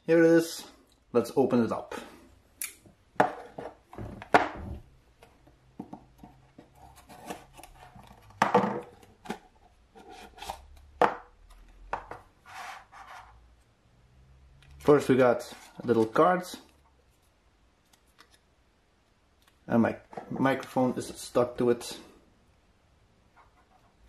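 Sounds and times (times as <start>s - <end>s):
box lid scraping and sliding: 12.4s - 13.4s.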